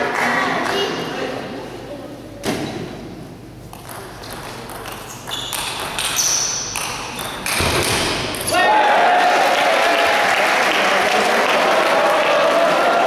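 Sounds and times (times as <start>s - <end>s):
table tennis ball hits: 3.7s - 8.6s.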